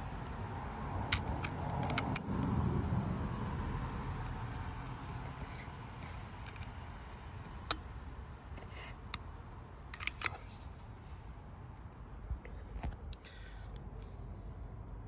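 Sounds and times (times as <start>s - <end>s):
plastic housing clicks and taps: 1.1s - 2.3s, 7.6s - 7.9s, 9.8s - 10.6s.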